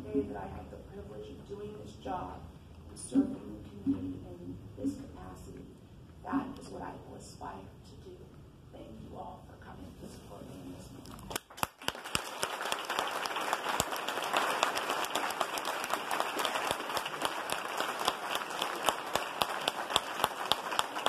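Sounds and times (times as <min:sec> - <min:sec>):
crowd applauding: 0:11.3 - 0:21.0.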